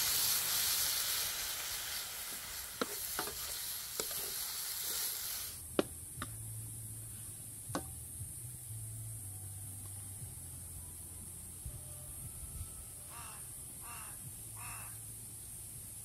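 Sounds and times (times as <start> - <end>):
vegetables sizzling in a wok: 0.0 - 5.7.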